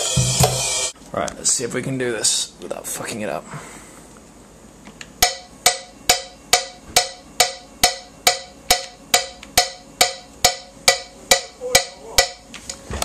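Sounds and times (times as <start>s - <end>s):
wood-block metronome clicking: 5.2s - 12.4s.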